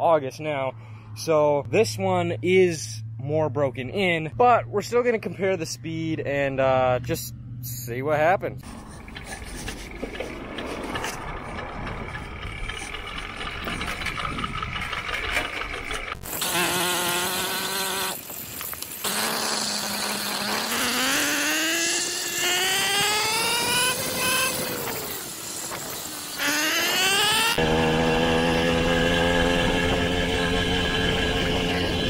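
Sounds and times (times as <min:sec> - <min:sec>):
two-stroke engine accelerating: 0:08.6 - 0:32.0.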